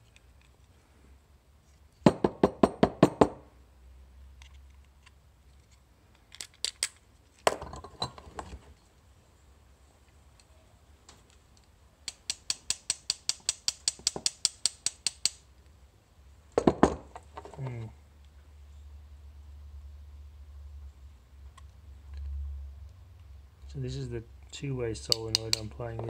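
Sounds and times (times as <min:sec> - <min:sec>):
small metal clicks and taps: 0:11.1 - 0:15.7, 0:25.1 - 0:26.0.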